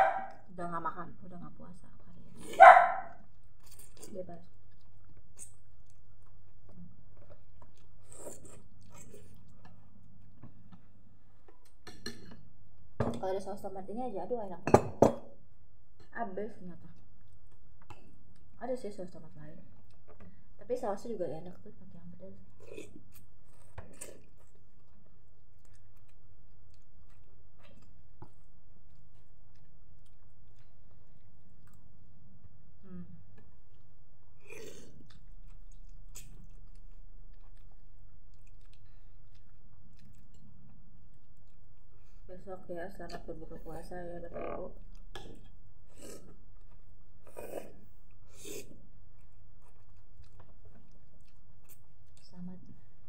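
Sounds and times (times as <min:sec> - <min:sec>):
person chewing noodles: 0:03.2 - 0:11.8, 0:22.5 - 0:42.3, 0:44.8 - 0:52.2.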